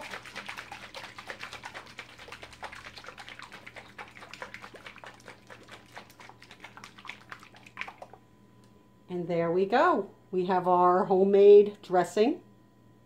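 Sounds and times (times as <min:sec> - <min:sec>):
dressing sloshing in shaker cup: 0:00.0 - 0:08.2.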